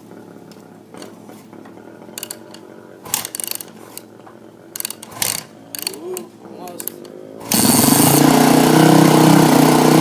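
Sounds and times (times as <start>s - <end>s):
motorcycle kickstart clatter: 1.0s - 4.1s, 4.7s - 7.9s.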